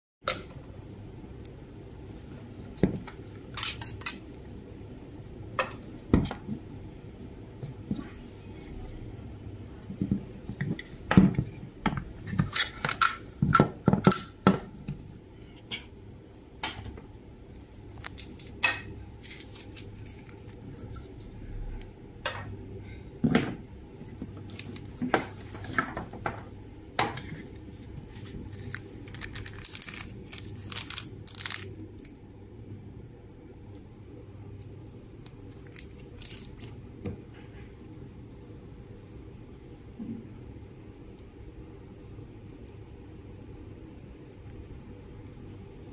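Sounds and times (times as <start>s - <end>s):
plastic zip bag crinkling: 28.0s - 32.2s, 34.6s - 36.8s.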